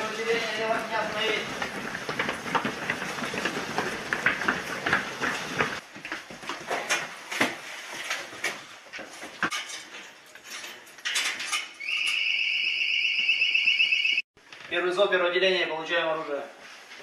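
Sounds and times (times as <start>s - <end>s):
boots running on hard floor: 0.0s - 9.5s.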